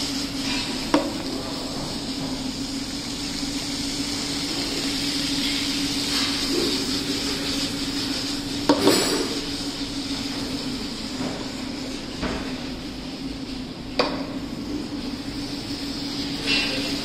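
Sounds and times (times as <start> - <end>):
pasta sizzling in a frying pan: 0.0 - 13.6, 14.2 - 17.0
steady hum: 0.0 - 17.0
spatula stirring in a pan: 4.9 - 8.8.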